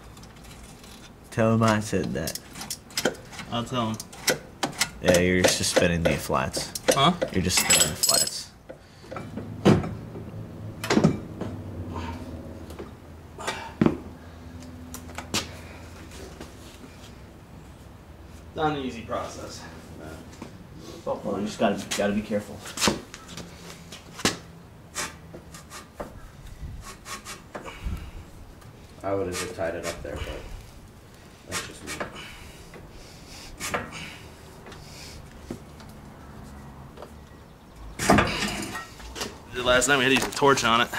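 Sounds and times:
metal clunks and knocks: 9.0 - 11.6, 38.0 - 39.4.

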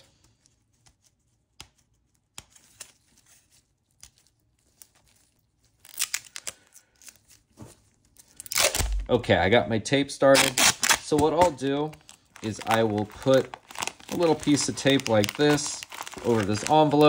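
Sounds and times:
tape peeling off roll: 8.4 - 9.0.

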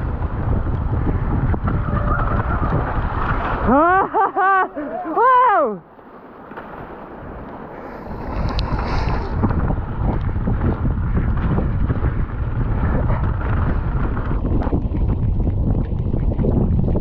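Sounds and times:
bike rattling over bumps: 0.0 - 3.8, 8.1 - 17.0
wind buffeting microphone: 0.0 - 5.8, 6.8 - 17.0
bike tyres rolling on wet gravel: 0.0 - 17.0.

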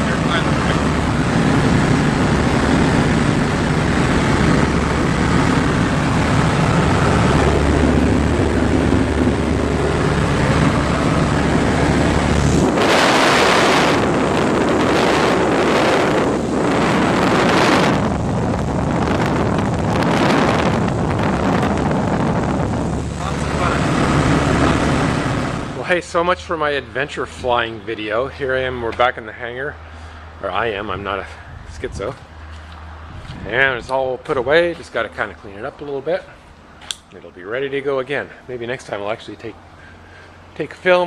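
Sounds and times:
wind buffeting microphone: 0.0 - 25.9, 30.4 - 35.3
rushing air: 0.0 - 26.3, 29.7 - 33.8
small plane engine droning: 0.0 - 41.0.

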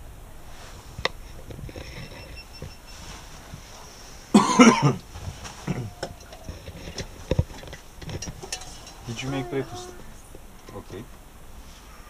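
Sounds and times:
gondola cabin hum: 0.0 - 12.0
person coughing: 4.3 - 5.0, 5.7 - 5.9.

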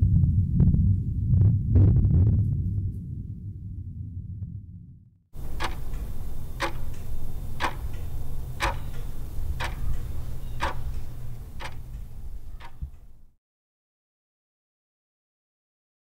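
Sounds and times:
steady low drone: 0.0 - 13.3
clock-like ticking: 5.4 - 13.2.

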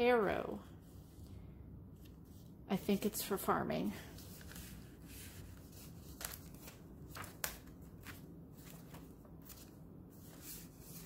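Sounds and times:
paper pages rustling: 4.0 - 11.0.

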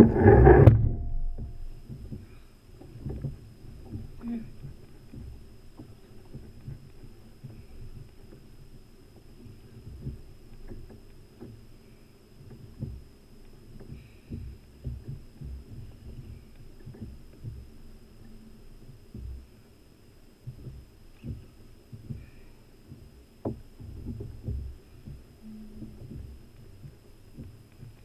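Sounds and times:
faint high whine: 0.0 - 28.0
waves slapping a kayak hull: 0.0 - 28.0.

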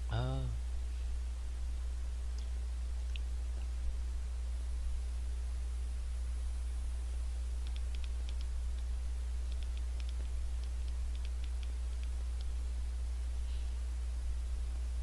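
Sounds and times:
steady low hum: 0.0 - 15.0
typing on smartphone touchscreen: 7.6 - 8.9, 9.5 - 12.5.

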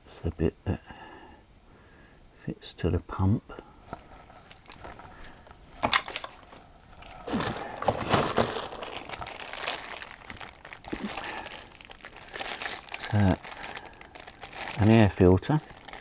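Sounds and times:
rustling packing material: 3.8 - 16.0.

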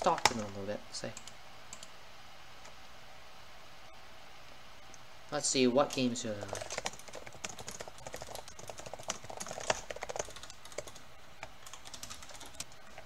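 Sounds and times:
computer keyboard typing: 0.0 - 0.5, 6.4 - 13.0.

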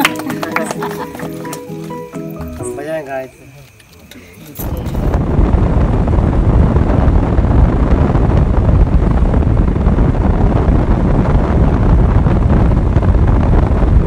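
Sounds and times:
wind buffeting microphone: 4.6 - 14.0.

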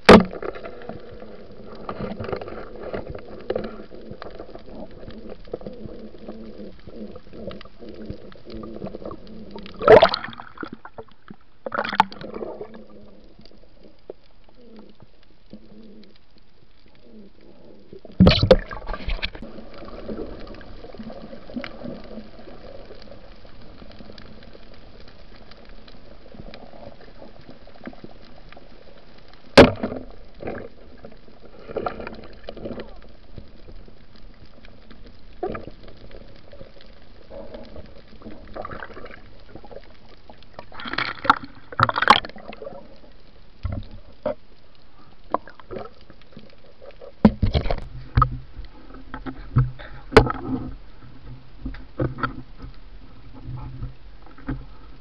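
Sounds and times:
muffled underwater wash: 0.0 - 55.0
splashy sounds: 9.8 - 10.8, 18.2 - 19.4.

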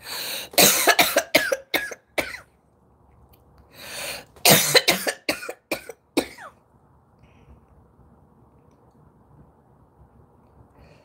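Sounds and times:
person coughing: 0.6 - 2.5, 4.4 - 6.5.

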